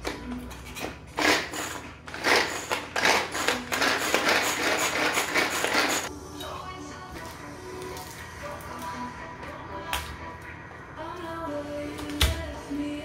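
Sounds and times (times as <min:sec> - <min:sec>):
pull-cord food chopper chopping: 0:01.2 - 0:06.1.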